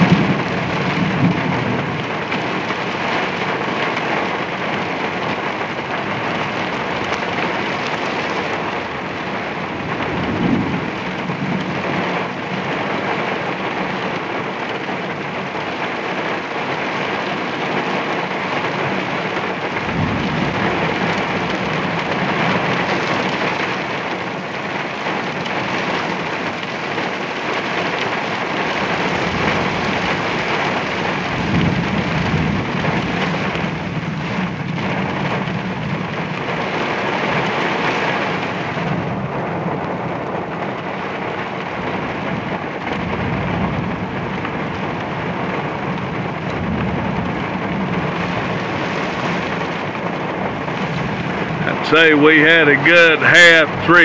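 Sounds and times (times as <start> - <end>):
heavy rain pouring: 0.0 - 54.0
thunder rumbling: 0.0 - 54.0.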